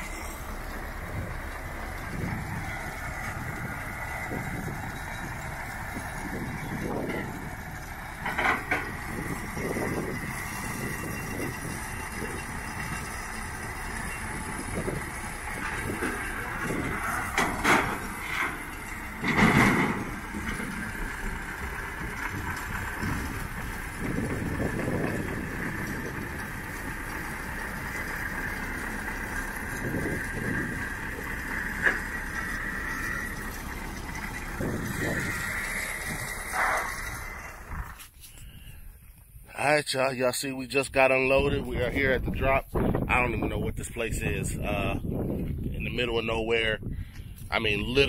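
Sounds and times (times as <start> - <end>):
tractor diesel engine running: 0.0 - 48.0
loud clunk: 17.3 - 18.6, 19.2 - 20.7.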